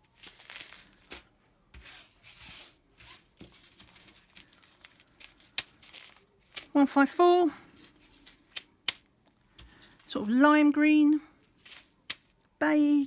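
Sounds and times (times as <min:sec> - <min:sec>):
plastic bags rustling and crinkling: 0:00.0 - 0:08.6, 0:11.3 - 0:12.4.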